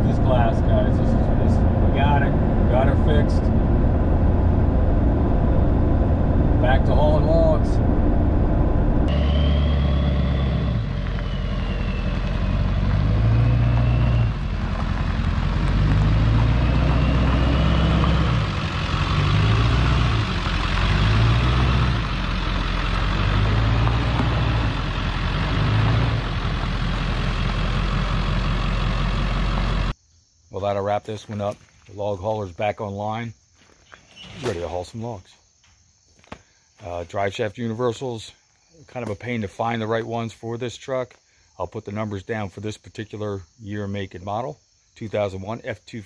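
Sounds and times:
diesel engine rumbling: 0.0s - 30.0s
faint high whistle: 9.1s - 14.5s.

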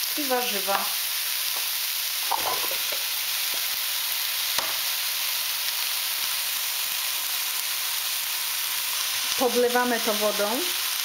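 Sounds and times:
vegetables sizzling in oil: 0.0s - 11.0s
vegetables knocking in pot: 2.3s - 3.1s.

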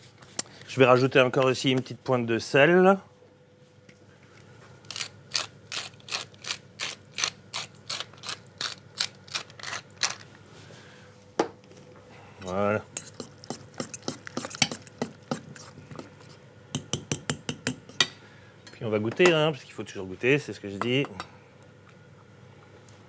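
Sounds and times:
salt mill grinding: 4.9s - 10.3s.

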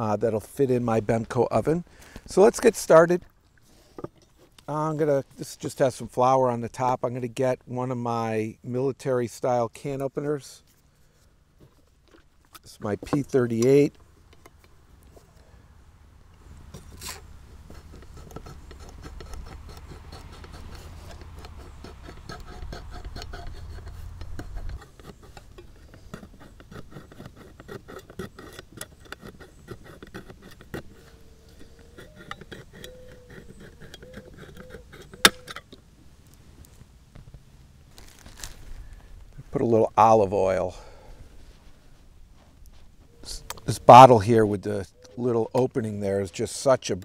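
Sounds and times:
can opener cutting tin can: 16.7s - 35.8s.

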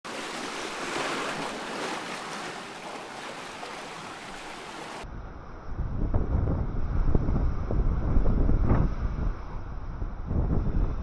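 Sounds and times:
sea surf against rocks: 0.0s - 5.0s
wind buffeting microphone: 0.4s - 11.0s.

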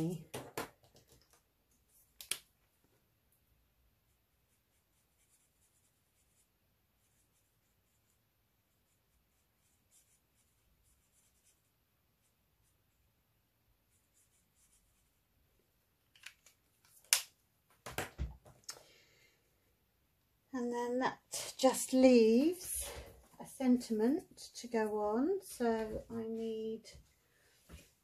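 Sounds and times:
marker scratching on card: 4.4s - 11.8s, 13.9s - 15.2s.

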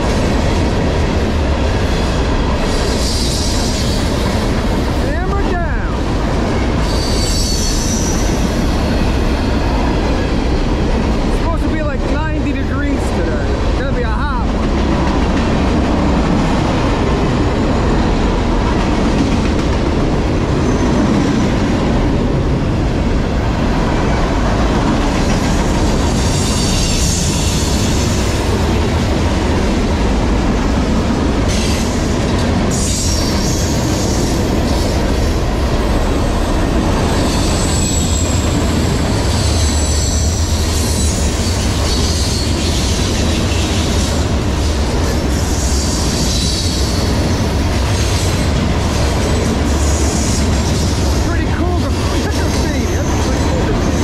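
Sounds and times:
train wheels rumbling on rails: 0.0s - 54.0s
high-pitched wheel squeal: 6.8s - 9.3s, 37.1s - 38.5s.

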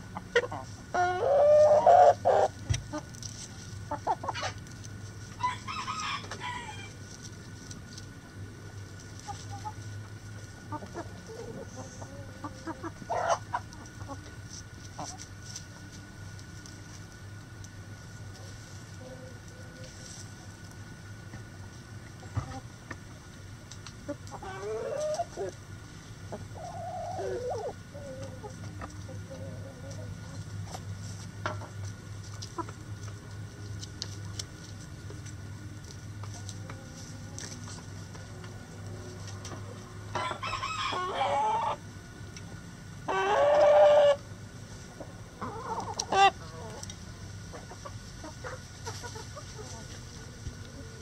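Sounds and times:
chickens drawn-out calls: 0.0s - 7.6s, 9.0s - 15.7s, 24.0s - 30.8s, 36.3s - 51.0s
chickens clucking: 0.0s - 51.0s
chicken squawk: 0.2s - 3.0s, 10.7s - 14.2s, 24.4s - 25.6s, 26.6s - 28.6s, 40.1s - 41.8s, 43.1s - 44.2s
rooster crowing: 5.4s - 7.0s, 40.1s - 41.8s.

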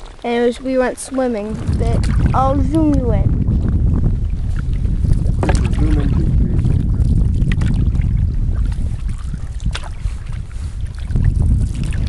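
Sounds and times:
wind buffeting microphone: 0.0s - 12.0s
sharp knocks or splashes: 1.2s - 3.2s, 4.5s - 10.4s.

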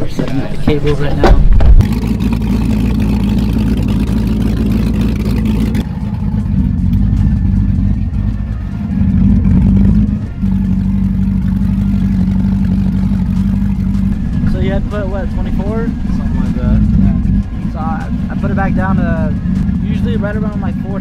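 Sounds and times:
boat engine running: 0.0s - 21.0s
exhaust churning water: 1.8s - 5.9s.

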